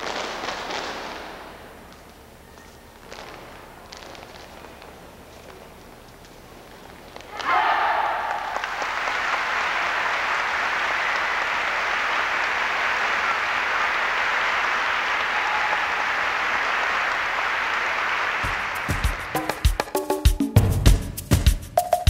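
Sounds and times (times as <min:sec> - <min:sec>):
large audience applauding: 0:08.0 - 0:20.0.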